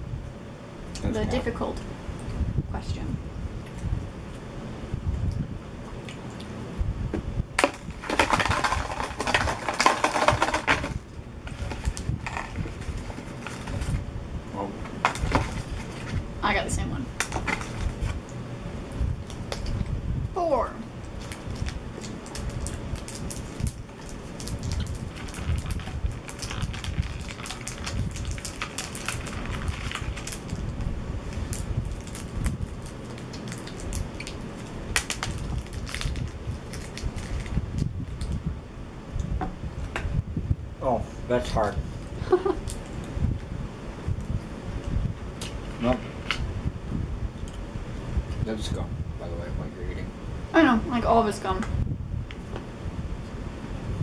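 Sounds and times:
plastic wrappers crinkling: 7.6 - 14.0, 21.1 - 30.7, 31.3 - 37.6.

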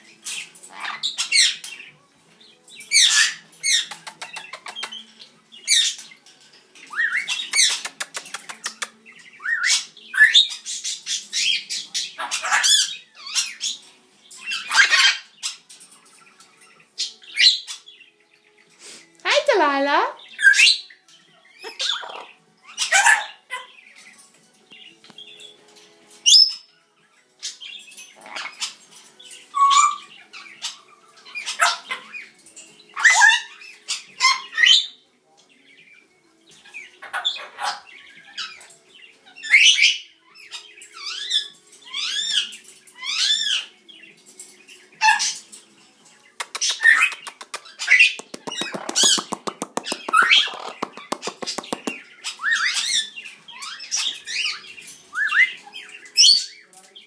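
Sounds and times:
parrot squawking: 12.2 - 13.6, 14.5 - 15.3, 21.6 - 23.8, 29.6 - 32.2, 33.0 - 34.8.

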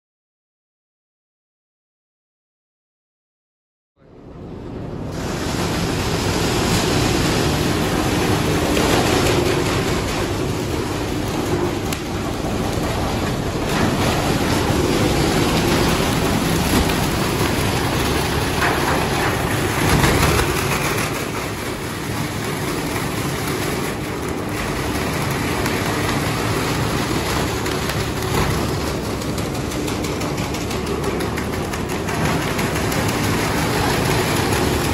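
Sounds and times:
rotating drum machine whirring: 5.2 - 34.9
plastic bags churning: 5.5 - 34.9.

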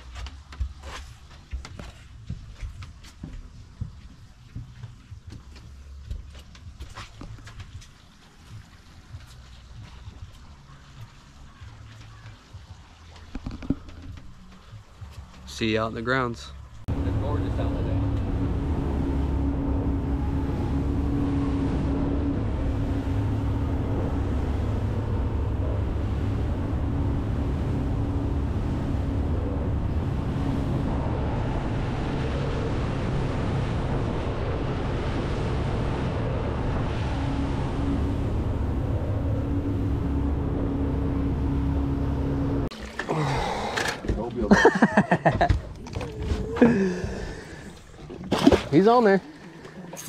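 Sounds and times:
water rushing along hull: 7.1 - 50.0
outboard engines droning: 8.0 - 50.0
wind on microphone: 16.9 - 42.7.

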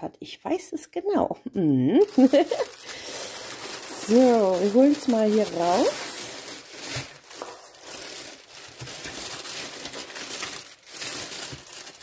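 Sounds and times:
plastic packaging crinkling: 2.0 - 12.0.

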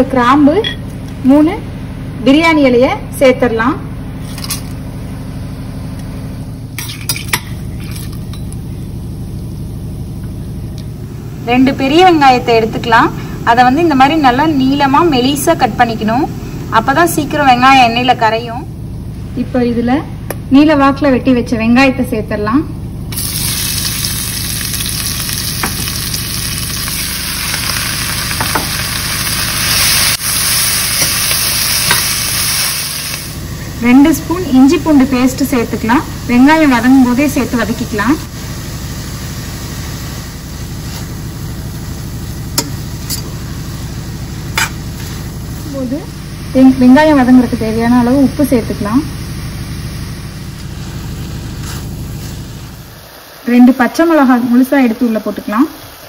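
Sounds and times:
spices sizzling in hot oil: 23.1 - 47.1.

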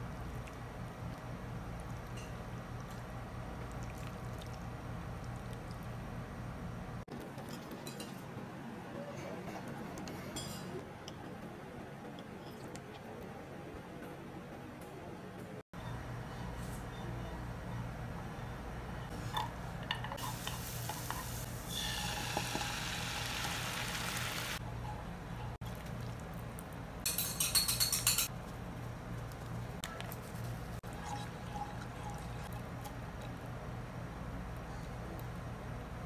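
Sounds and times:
liquid hissing in a pan: 20.2 - 24.6.

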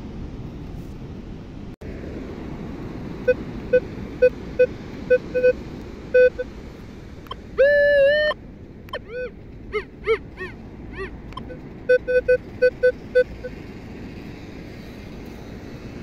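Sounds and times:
metal detector beeps: 3.3 - 5.6, 6.2 - 6.5, 7.6 - 9.3, 11.4 - 13.5.

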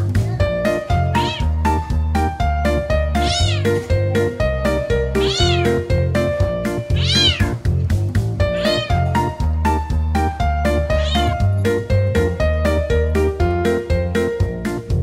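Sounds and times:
kitten meowing: 1.1 - 1.7, 3.1 - 3.8, 5.1 - 5.9, 6.9 - 7.6, 8.5 - 9.3, 10.7 - 11.4.

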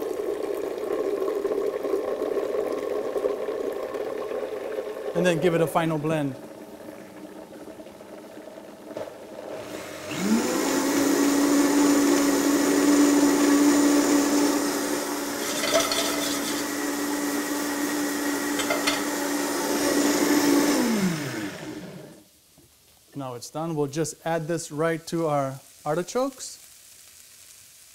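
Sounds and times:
blender motor whining: 9.4 - 22.2.

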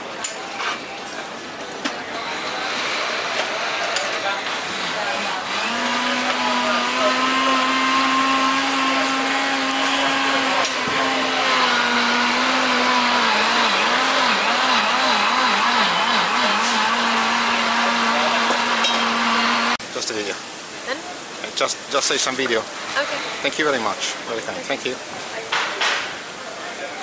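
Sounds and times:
blender motor running: 2.2 - 19.8.

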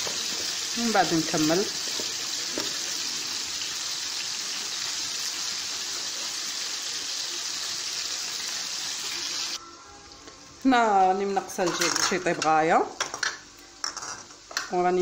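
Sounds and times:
chicken sizzling in frying pan: 0.0 - 9.6.

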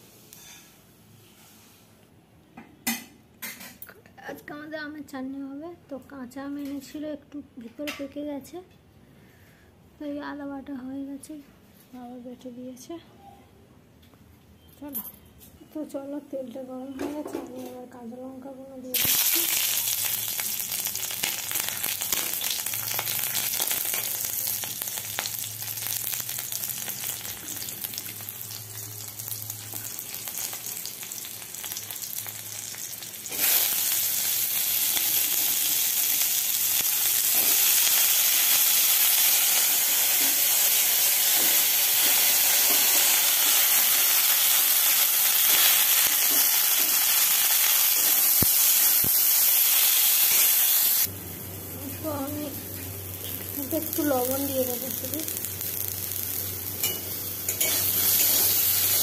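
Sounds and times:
chillies sizzling in oil: 0.0 - 1.9, 18.9 - 59.0
vegetables frying sizzle: 18.9 - 59.0.

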